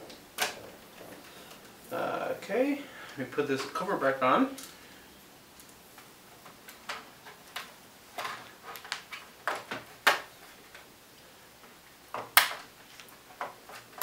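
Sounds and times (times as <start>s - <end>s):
plastic clips snapping: 12.2s - 12.7s.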